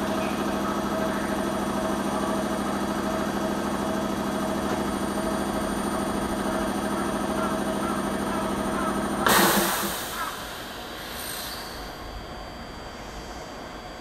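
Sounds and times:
high whine: 0.0s - 14.0s
machinery hum: 0.0s - 14.0s.

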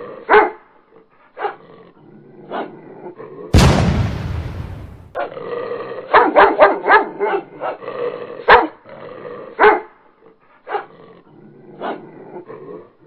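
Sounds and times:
dog barking angrily: 0.3s - 0.6s, 6.1s - 7.8s, 8.5s - 8.8s, 9.6s - 10.0s.

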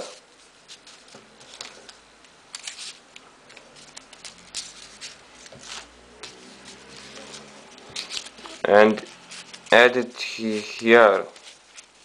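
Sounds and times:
paper rustling: 0.0s - 12.0s
light paper clicks: 0.8s - 9.8s.

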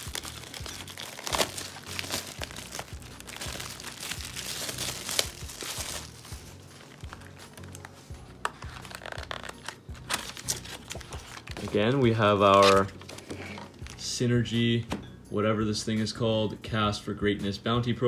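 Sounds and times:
shrink wrap tearing snaps: 0.0s - 5.8s
plastic shrink wrap crinkling: 0.0s - 14.0s.

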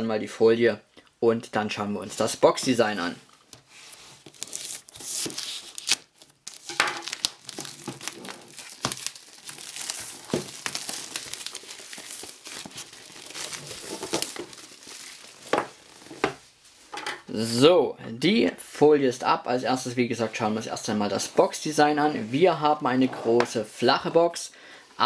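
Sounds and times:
plastic film tearing and crinkling: 3.8s - 16.4s.

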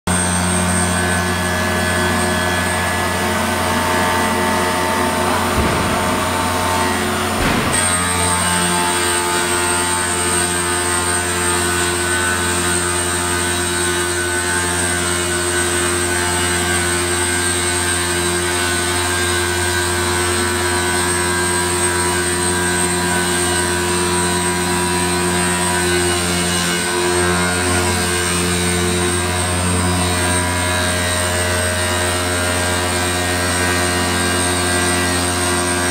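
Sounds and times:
grinding machine drone: 0.1s - 35.9s.

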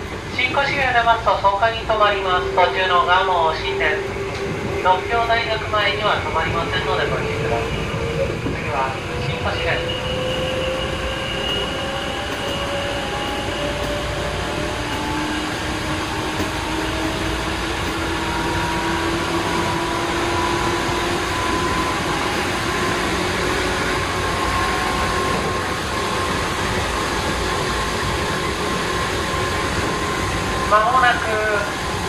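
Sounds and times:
train wheel and track rumble: 0.0s - 32.0s.

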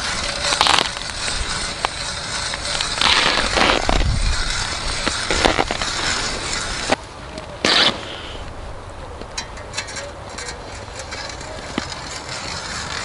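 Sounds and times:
crunching snow and ice: 0.0s - 8.5s
steady hiss: 0.0s - 9.1s.

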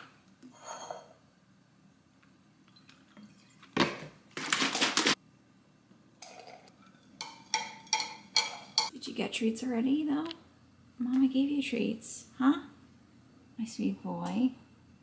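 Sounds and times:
spoon clinking in ceramic mug: 7.2s - 8.9s.

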